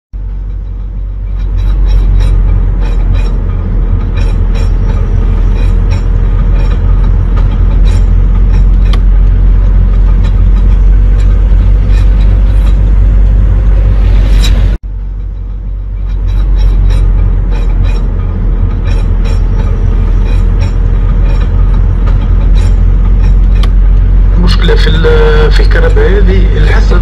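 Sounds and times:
car interior rumble: 0:00.2 - 0:27.0.

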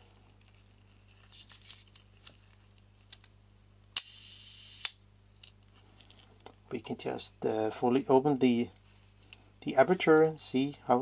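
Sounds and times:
camera shutter clicks: 0:04.0 - 0:05.0.

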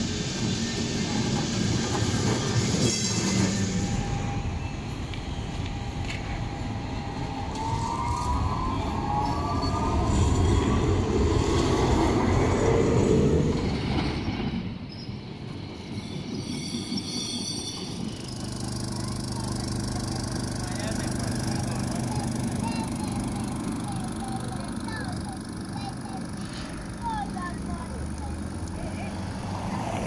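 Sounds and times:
street background hum: 0:00.0 - 0:30.0
tram wheels rumbling on rails: 0:00.0 - 0:30.0
wheel squeals: 0:15.9 - 0:18.4.

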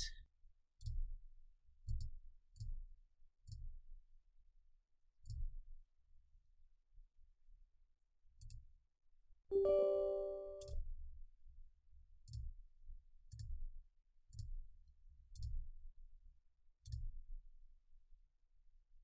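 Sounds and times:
short electronic chime: 0:09.5 - 0:10.7.

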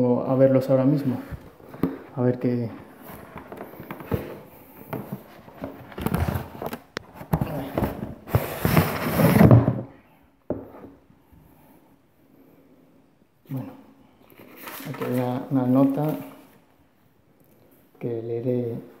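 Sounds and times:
cardboard rustling and scraping: 0:02.7 - 0:09.8, 0:14.4 - 0:16.5.

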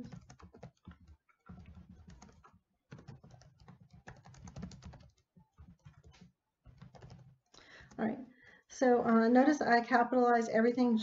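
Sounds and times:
faint typing on keyboard: 0:00.0 - 0:08.8.

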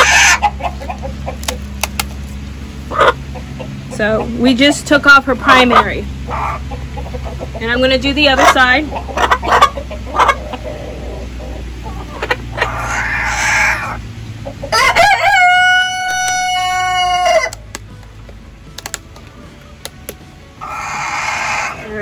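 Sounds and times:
rooster crowing: 0:14.7 - 0:17.6, 0:20.6 - 0:21.8.

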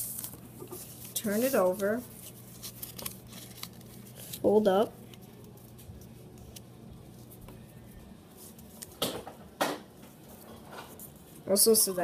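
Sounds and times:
paper rustling: 0:00.0 - 0:09.1
faint low hum: 0:00.0 - 0:12.0.

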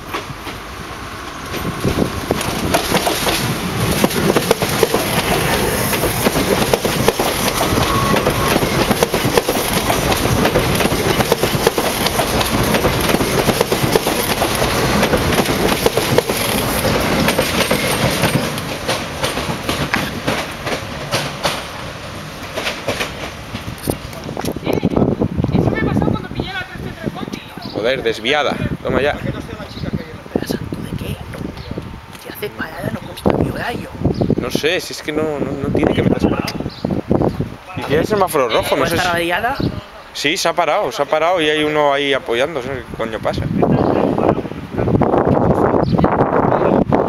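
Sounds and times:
electric train passing: 0:00.0 - 0:35.8
train wheels clattering over rail joints: 0:01.4 - 0:24.6.

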